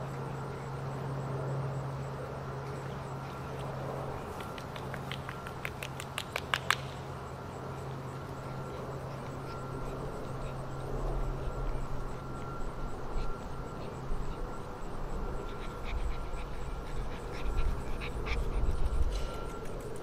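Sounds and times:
steady background hum: 0.0 - 20.0
puppies yipping and squeaking: 7.5 - 19.9.

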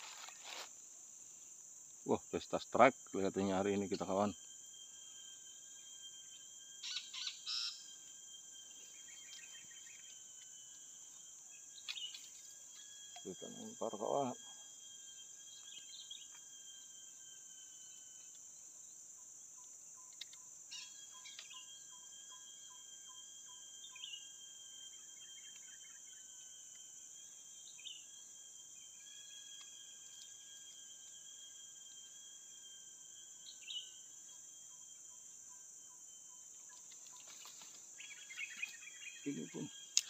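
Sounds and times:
insects droning: 0.0 - 40.0
bird chirps: 3.5 - 16.9, 19.5 - 26.4, 34.7 - 40.0.

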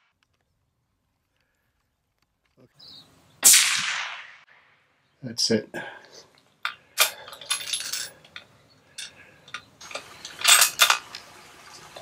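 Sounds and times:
short metallic rattles: 7.0 - 11.2.

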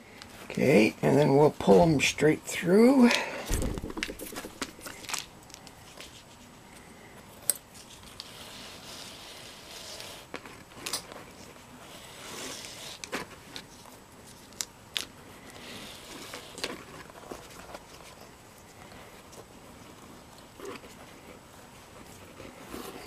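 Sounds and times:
cord sliding through leather: 4.0 - 6.6, 7.3 - 23.0.

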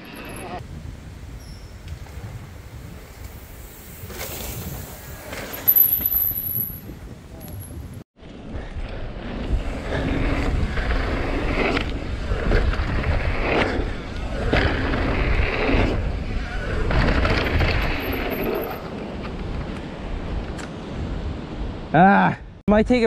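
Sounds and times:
wind rumbling on microphone: 0.0 - 21.9
bike tyres crunching over dirt: 0.8 - 8.4.

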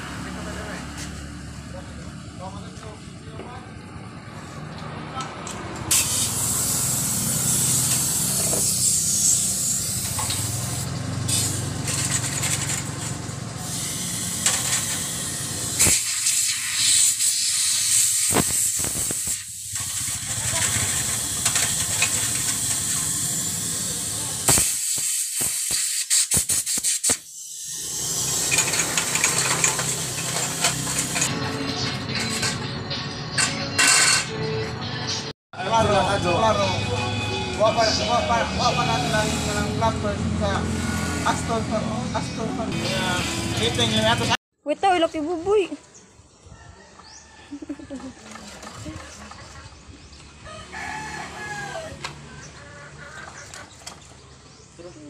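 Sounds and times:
air blow gun hissing: 5.9 - 11.8, 13.5 - 31.2, 38.9 - 39.9.

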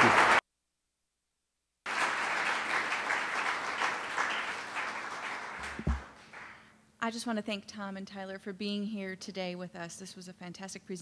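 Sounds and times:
audience applauding: 0.0 - 0.4, 1.9 - 6.6
low thud: 5.7 - 6.1.

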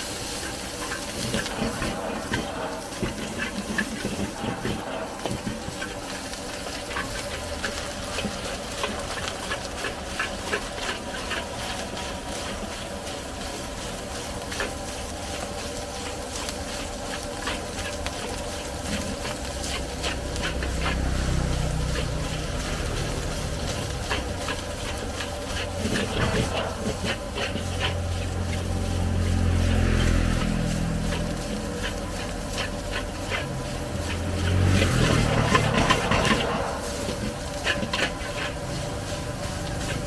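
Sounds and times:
food sizzling: 0.0 - 40.0
gas burner rumble: 0.0 - 40.0
metal spatula scraping a wok: 17.5 - 40.0.

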